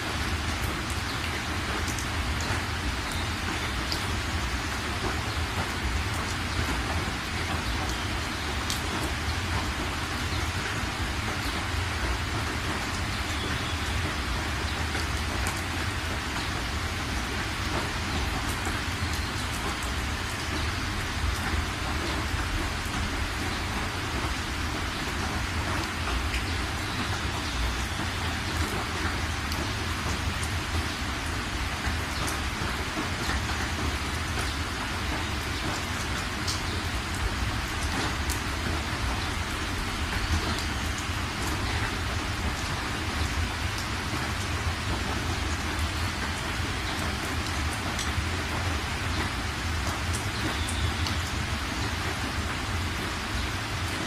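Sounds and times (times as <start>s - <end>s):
heavy rain on car: 0.0s - 54.0s.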